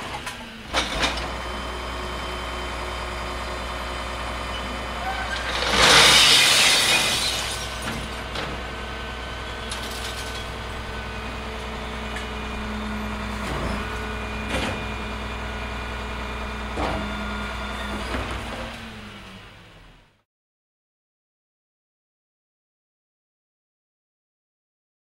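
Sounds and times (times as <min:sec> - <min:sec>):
garbage truck engine idling: 0:07.3 - 0:19.7.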